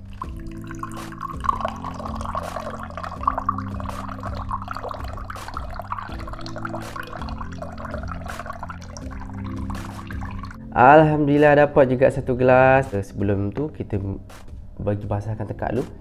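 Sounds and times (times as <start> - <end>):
juice trickling into a glass: 0.0 - 10.6
small splashes of juice: 0.0 - 10.6.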